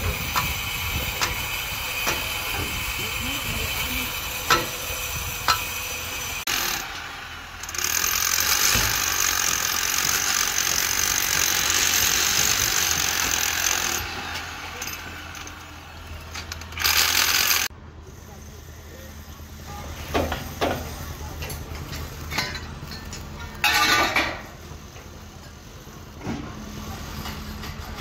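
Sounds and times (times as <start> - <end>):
rasping mechanical noise: 0.0 - 23.6
knocks on steel formwork: 4.4 - 5.7.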